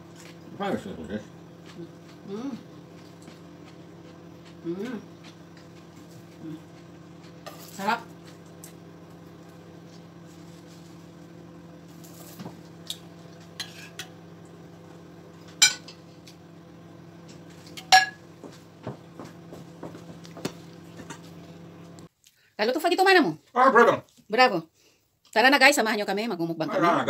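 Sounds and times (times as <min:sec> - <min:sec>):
steady low hum: 0:00.0 - 0:22.1
knife and fork clinking on a plate: 0:13.6 - 0:14.1.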